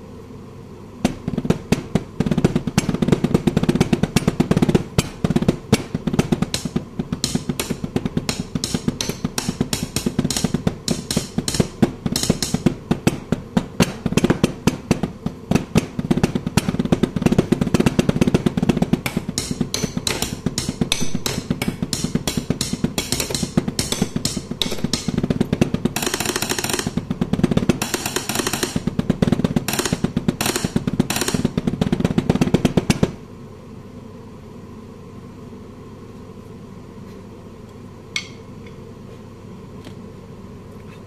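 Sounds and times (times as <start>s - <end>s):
drumsticks drumming on kitchenware: 1.0s - 33.1s, 38.2s - 38.4s.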